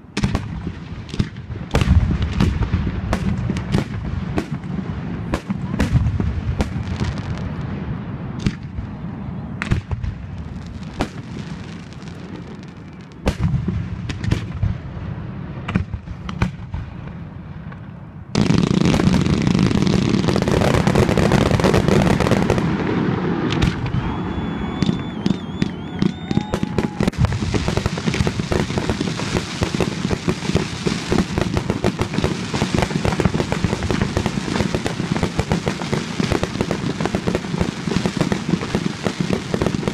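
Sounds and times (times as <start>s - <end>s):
rapid firework bangs and crackling: 0.0s - 39.9s
firework whistles: 19.6s - 31.2s.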